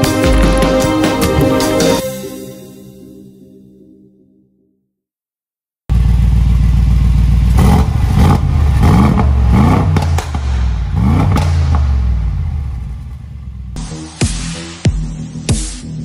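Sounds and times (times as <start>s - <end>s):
car engine idling and revving: 5.9s - 14.2s.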